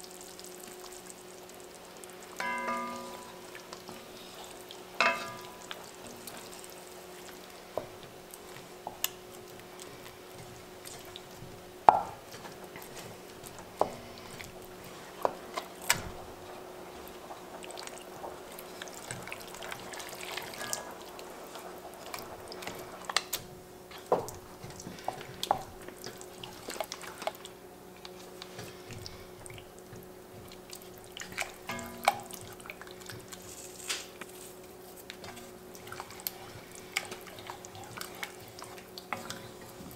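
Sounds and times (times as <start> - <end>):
wet squelching and scraping stew: 2.3 - 39.9
wooden spatula knocking pot: 2.4 - 3.4, 11.8 - 12.2.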